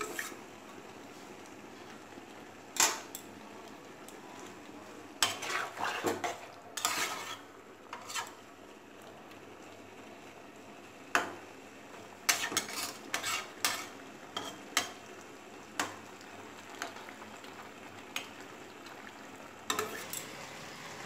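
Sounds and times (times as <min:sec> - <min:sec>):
metal spatula scraping frying pan: 0:00.0 - 0:00.4, 0:05.2 - 0:08.4, 0:12.3 - 0:14.6, 0:19.7 - 0:20.3
curry sizzling: 0:00.0 - 0:21.0.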